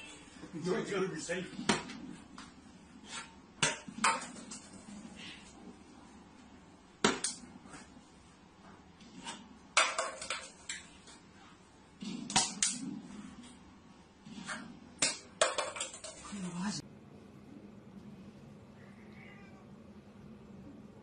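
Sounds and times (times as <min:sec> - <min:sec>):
hard objects knocking and clicking: 0:09.7 - 0:11.0, 0:15.0 - 0:16.4.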